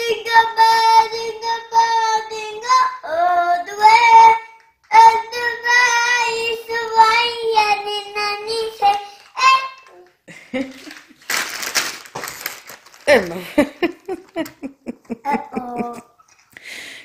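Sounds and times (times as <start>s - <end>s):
child singing loudly: 0.0s - 9.9s.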